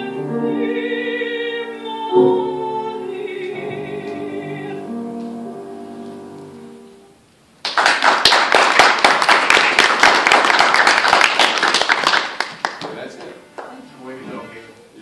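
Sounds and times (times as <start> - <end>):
woman singing classically: 0.0 - 5.4
piano: 0.0 - 15.0
audience applause: 7.6 - 13.8.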